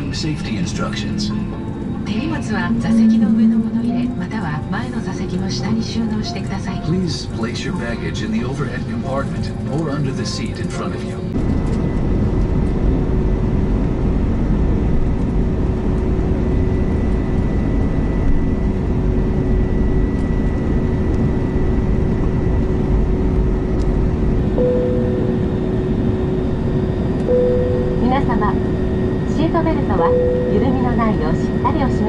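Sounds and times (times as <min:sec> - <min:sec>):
steady cabin hum: 0:00.0 - 0:16.5, 0:17.9 - 0:32.0
low jet engine rumble: 0:00.0 - 0:32.0
faint tone: 0:00.8 - 0:04.6, 0:24.6 - 0:32.0.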